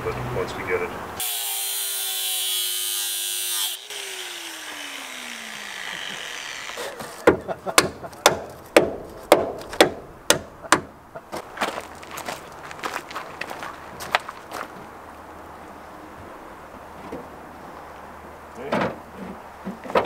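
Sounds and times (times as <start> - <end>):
power cutting tool whining: 1.2 - 7.2.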